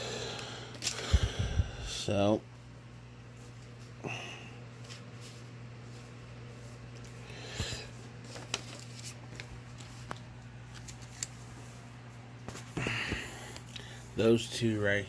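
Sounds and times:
paper rustling: 4.8s - 11.8s.

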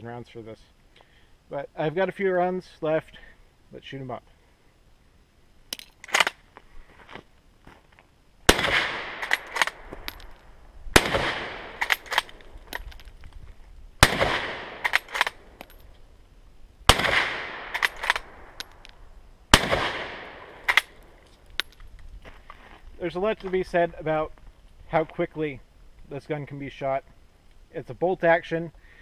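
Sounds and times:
rifle shots with echo: 8.5s - 9.9s, 10.9s - 12.4s, 14.0s - 15.6s, 16.9s - 18.6s, 19.5s - 21.0s
rifle bolt clacking: 11.8s - 13.1s, 14.8s - 15.9s, 17.7s - 19.0s.

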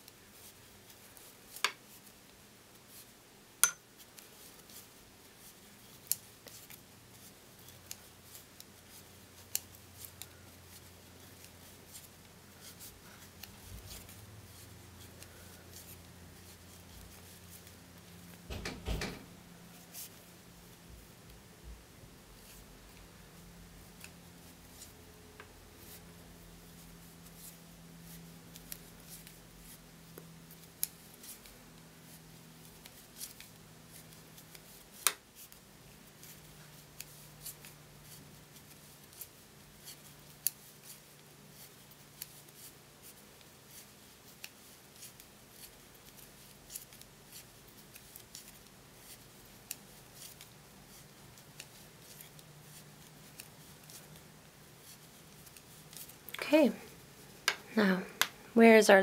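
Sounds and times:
wooden knitting needles clicking: 32.8s - 35.5s.

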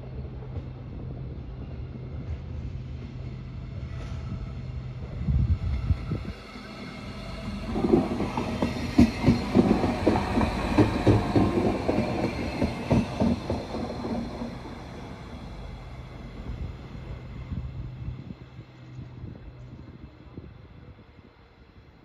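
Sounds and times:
train wheels clattering on track: 0.0s - 17.2s.

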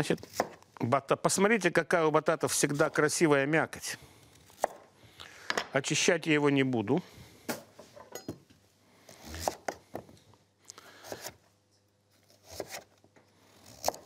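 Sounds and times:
knife slicing sweet potato: 9.1s - 9.8s, 12.2s - 13.0s, 13.6s - 14.0s.

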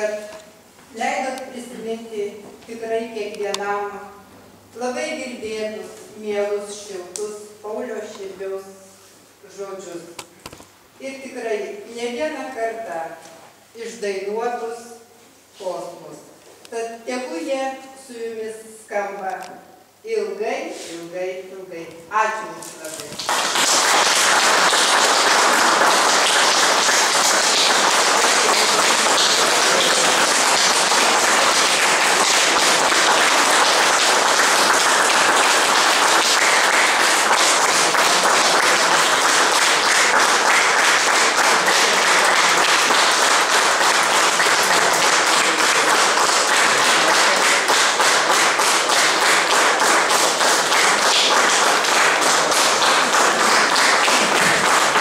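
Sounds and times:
audience applauding: 23.2s - 55.0s.

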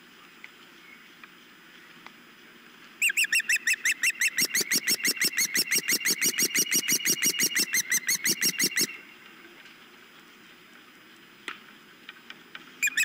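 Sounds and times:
osprey shrill chirps: 3.0s - 9.0s.

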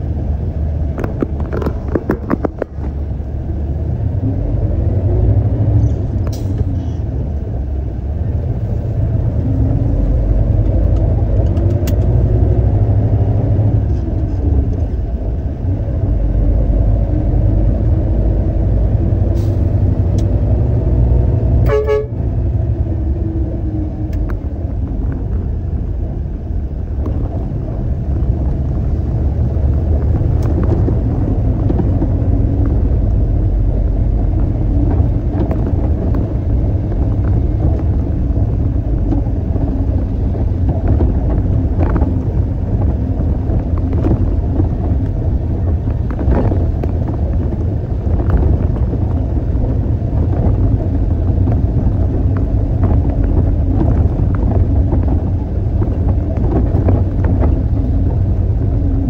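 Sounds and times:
truck diesel engine running: 0.0s - 59.0s
short horn toot: 21.6s - 22.2s.

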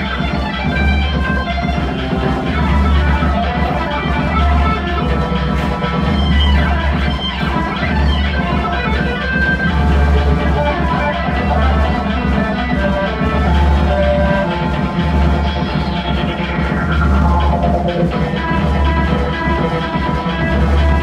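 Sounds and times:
live rock music: 0.0s - 21.0s.

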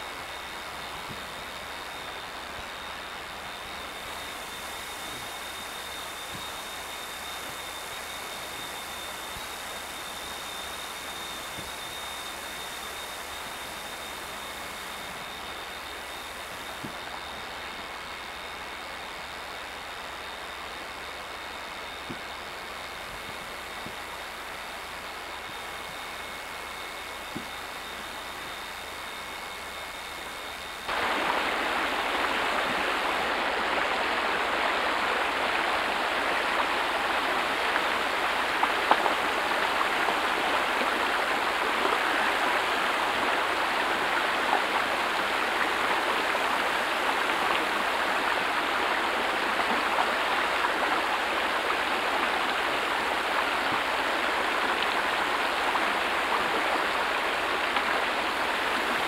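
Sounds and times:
creek rushing over rocks: 30.9s - 59.0s.

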